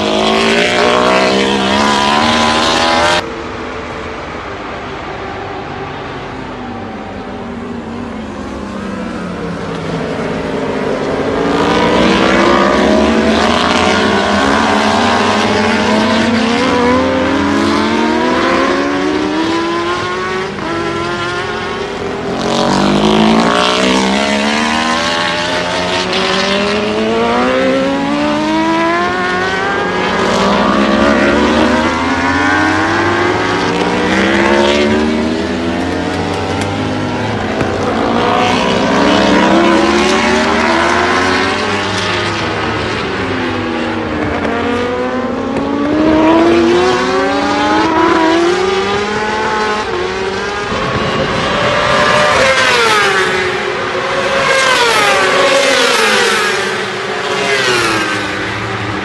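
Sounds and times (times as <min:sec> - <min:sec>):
racing motorcycles accelerating: 0:00.0 - 0:04.9, 0:06.3 - 0:59.0.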